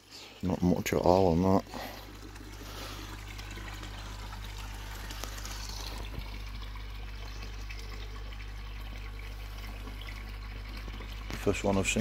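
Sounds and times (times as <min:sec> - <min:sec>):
pond water trickling: 0:00.0 - 0:12.0
low steady hum: 0:00.1 - 0:12.0.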